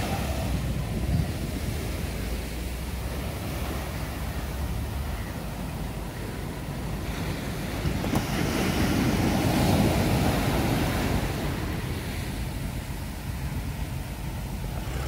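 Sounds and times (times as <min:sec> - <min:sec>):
surf washing against boat hull: 0:00.0 - 0:15.0.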